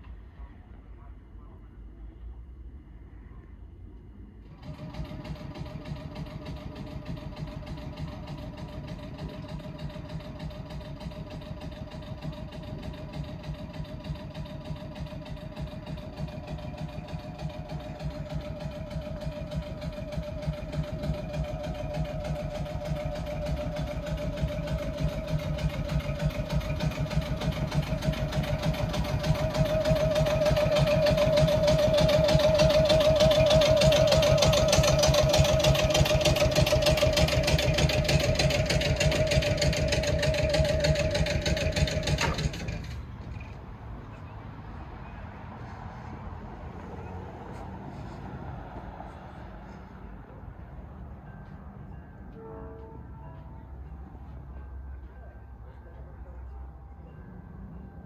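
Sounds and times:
air compressor running: 4.5s - 43.7s.

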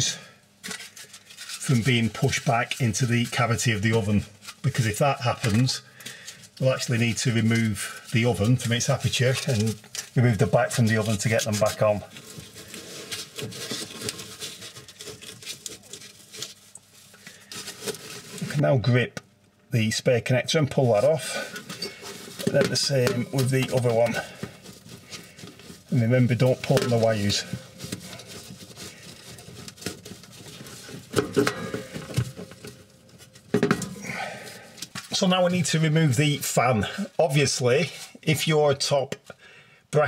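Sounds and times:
gloved hand scraping metal: 0.0s - 5.6s, 7.2s - 18.6s, 20.7s - 35.2s.

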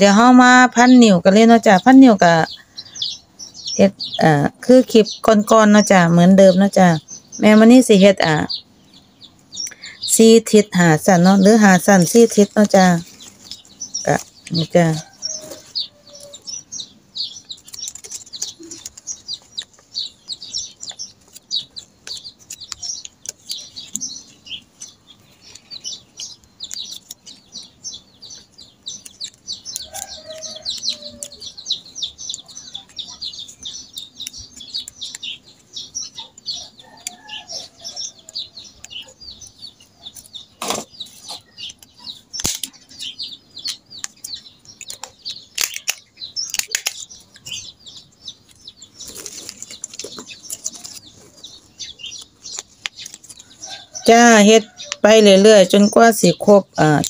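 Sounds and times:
small birds chirping: 0.0s - 57.0s
plastic ribbon crinkling: 17.5s - 19.9s, 28.9s - 31.4s, 44.8s - 47.4s, 48.5s - 53.6s.

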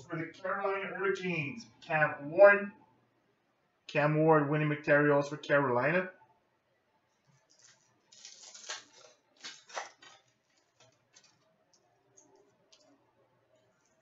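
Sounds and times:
foil wrapper crinkling: 7.2s - 13.0s.

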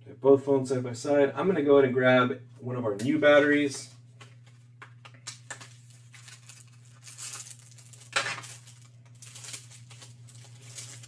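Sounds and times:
steady low hum: 0.0s - 11.0s
phone battery packaging rustling: 5.5s - 11.0s.

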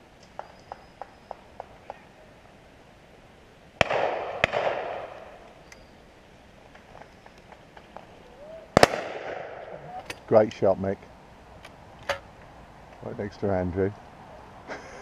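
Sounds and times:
shotgun shots echoing: 3.8s - 5.4s, 8.8s - 9.7s.

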